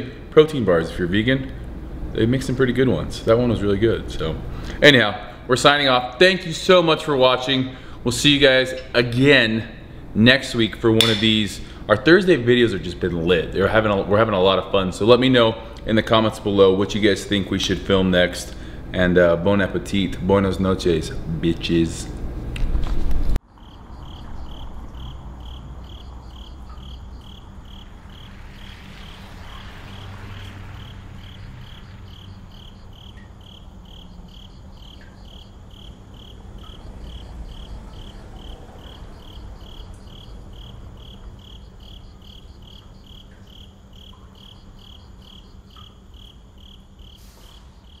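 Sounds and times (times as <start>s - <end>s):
low steady hum: 0.0s - 48.0s
crickets chirping: 23.4s - 48.0s.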